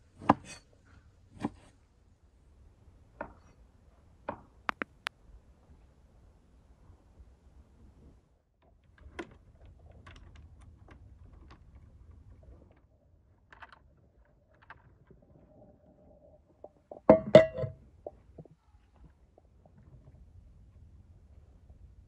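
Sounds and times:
enamel bowl clattering down: 16.8 - 17.8.

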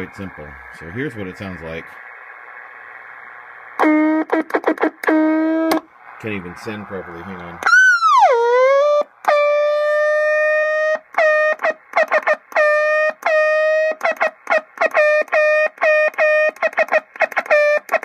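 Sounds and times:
buzzy morse code tone: 7.7 - 18.0.

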